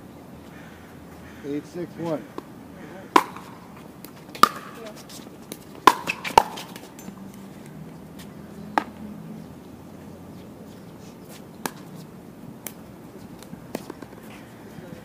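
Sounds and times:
paddles striking pickleball: 0:03.1 - 0:07.2, 0:11.6 - 0:11.9, 0:12.6 - 0:14.4.

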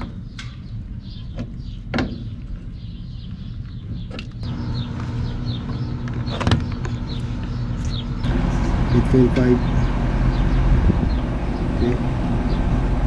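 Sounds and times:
low machine hum: 0:04.4 - 0:13.0.

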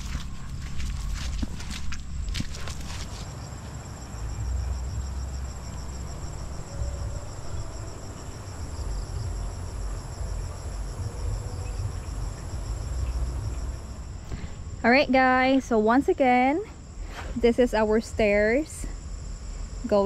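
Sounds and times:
rubber boots squelching in mud: 0:00.0 - 0:03.4
low rumble: 0:00.0 - 0:19.8
insect chorus trilling: 0:00.0 - 0:20.0.

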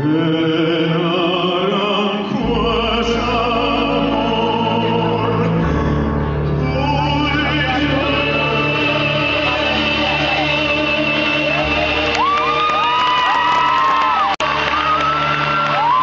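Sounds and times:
man singing with vibrato: 0:00.0 - 0:12.6
live band playing: 0:07.6 - 0:16.0.

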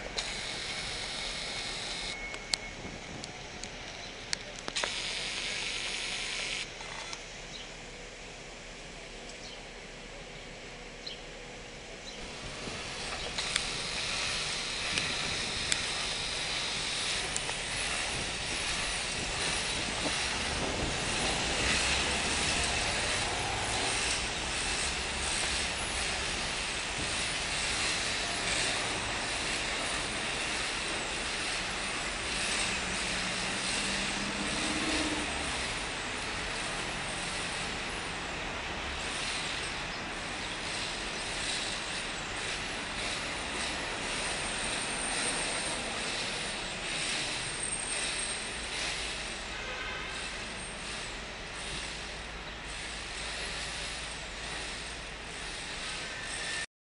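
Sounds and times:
street traffic rumble: 0:00.0 - 0:56.7.

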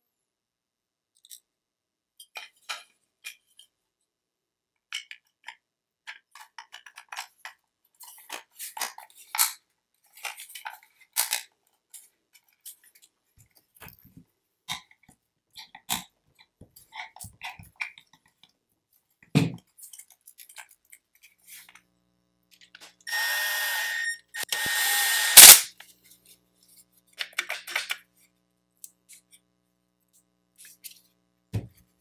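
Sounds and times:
plastic clicks and clatters: 0:04.8 - 0:18.6, 0:27.1 - 0:28.1.

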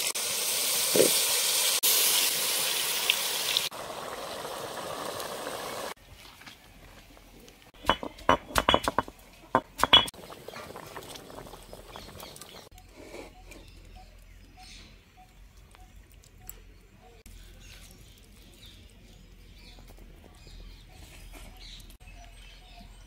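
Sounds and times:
stone roller clacking on slab: 0:07.8 - 0:10.1.

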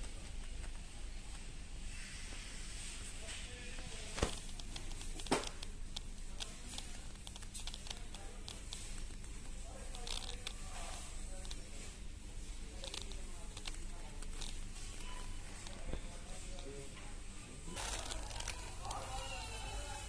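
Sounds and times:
steady low hum: 0:00.0 - 0:20.0
small clicks and rustles: 0:02.8 - 0:16.8, 0:17.7 - 0:19.4
faint distant voices: 0:05.4 - 0:20.0.

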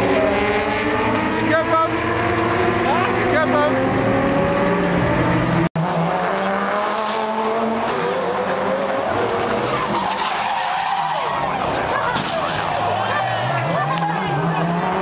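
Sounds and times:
race car engine passing by: 0:00.0 - 0:15.0
tyres squealing and skidding: 0:07.8 - 0:15.0.

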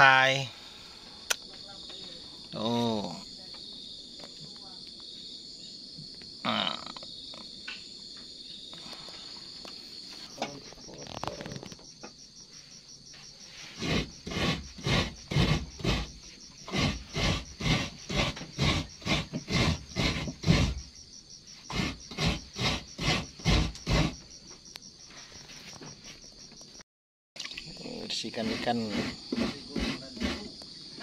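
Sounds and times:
crickets chirring: 0:00.0 - 0:26.8, 0:27.4 - 0:31.0
coconut rasping on grater: 0:13.7 - 0:20.9, 0:21.7 - 0:24.2, 0:28.1 - 0:30.6.

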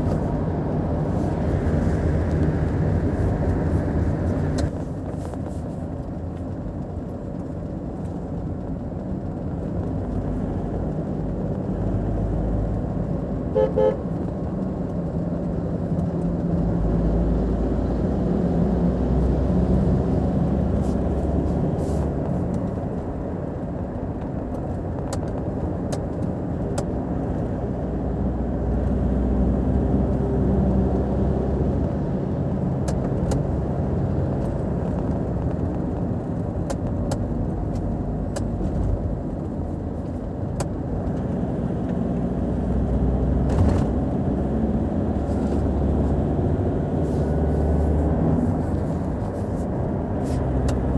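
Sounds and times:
car engine and tyre road noise: 0:00.0 - 0:50.9
car horn toots: 0:13.5 - 0:14.0.

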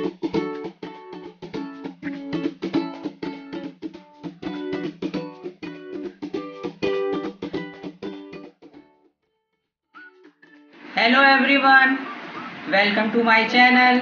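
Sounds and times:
plucked ukulele tune: 0:00.0 - 0:09.1.

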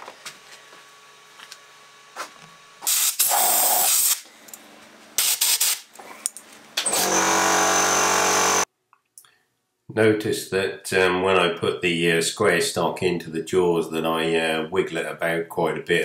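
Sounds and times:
loud bursts of hissing: 0:02.8 - 0:04.2, 0:05.2 - 0:05.9.

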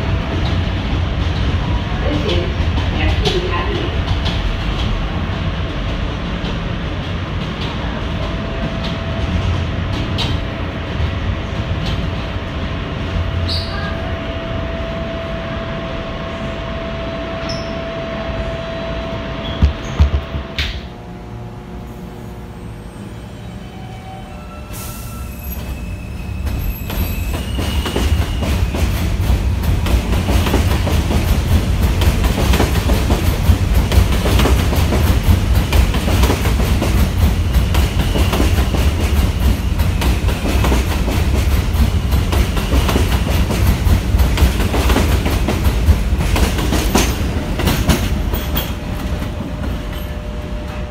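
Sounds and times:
subway train rumbling past: 0:00.0 - 0:50.9
faint wheel squeal: 0:13.5 - 0:13.9.

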